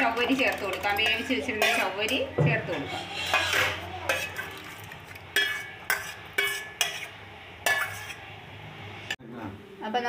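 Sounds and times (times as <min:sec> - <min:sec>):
metal ladle clinking on pot: 0:00.0 - 0:02.4, 0:03.2 - 0:08.2.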